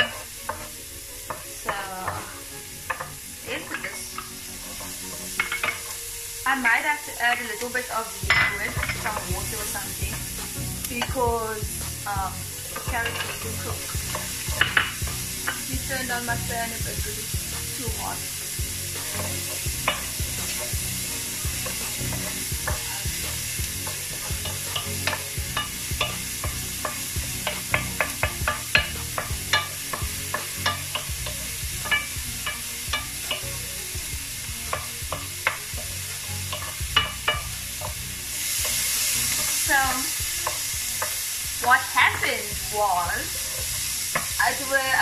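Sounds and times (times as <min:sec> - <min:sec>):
wooden spatula scraping pan: 0:00.0 - 0:06.0
vegetables sizzling in oil: 0:00.0 - 0:45.0.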